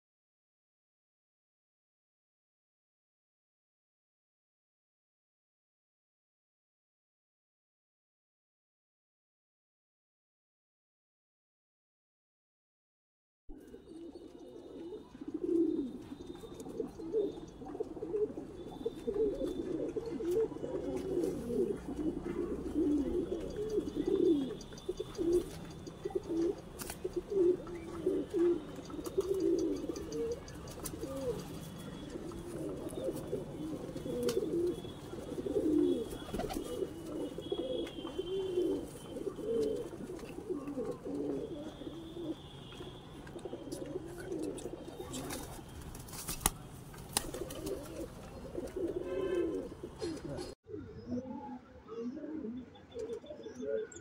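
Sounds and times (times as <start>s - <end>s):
pigeons cooing: 13.5s - 45.8s, 46.4s - 54.0s.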